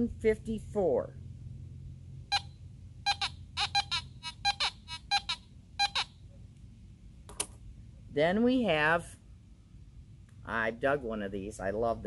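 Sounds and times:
metal detector short beeps: 0:02.3 - 0:02.5, 0:03.1 - 0:06.1.

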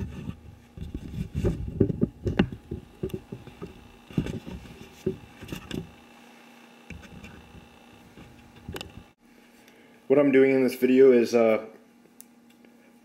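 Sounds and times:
camera handling thumps and rubbing: 0:00.0 - 0:05.9, 0:06.9 - 0:09.0.

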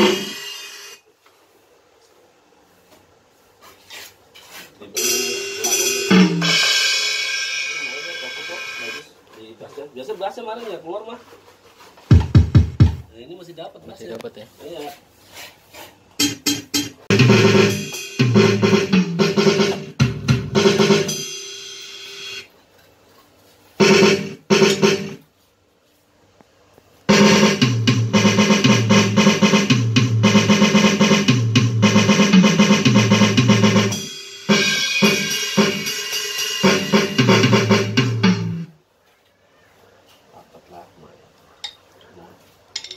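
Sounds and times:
electronic drum kit hits: 0:00.0 - 0:00.7, 0:05.0 - 0:07.9, 0:12.1 - 0:13.1, 0:16.2 - 0:21.8, 0:23.8 - 0:25.2, 0:27.1 - 0:38.7
cymbal ringing: 0:05.0 - 0:09.0, 0:33.9 - 0:37.2.

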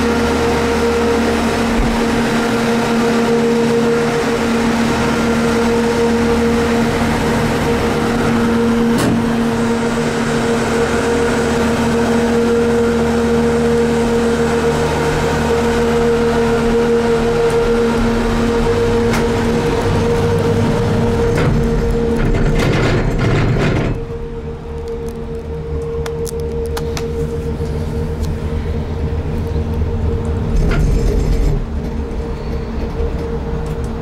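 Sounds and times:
gondola mechanical hum: 0:00.0 - 0:34.0.

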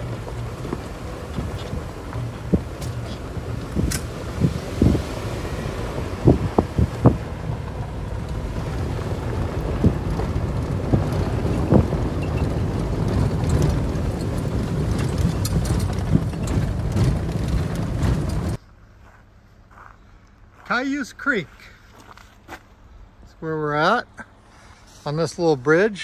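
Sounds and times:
knocks and rattles from bumps: 0:00.0 - 0:18.6
vehicle road and engine rumble: 0:00.0 - 0:26.0.

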